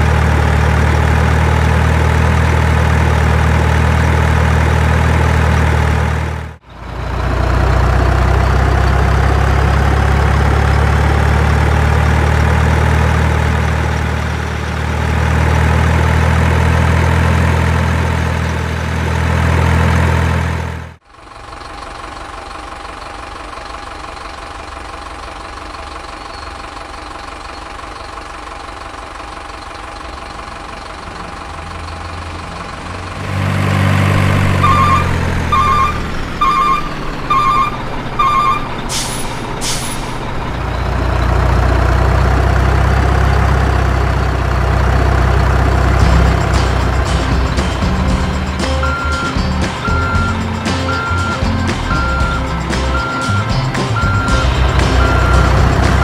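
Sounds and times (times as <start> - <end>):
truck engine idling: 0.0 - 56.0
thin engine hum: 31.0 - 56.0.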